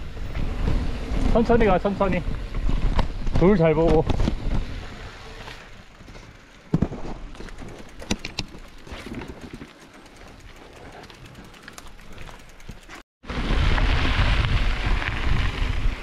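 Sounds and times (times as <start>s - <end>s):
bike knocking and clattering: 0.3s - 4.8s, 6.0s - 13.0s.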